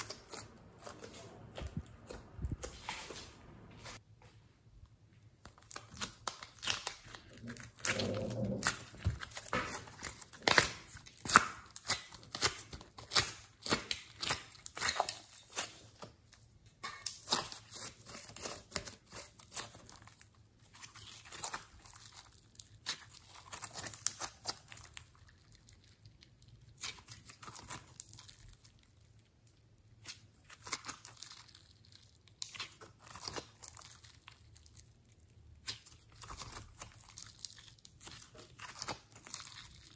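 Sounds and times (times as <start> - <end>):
slime popping and crackling: 5.4 - 16.2, 16.8 - 39.9.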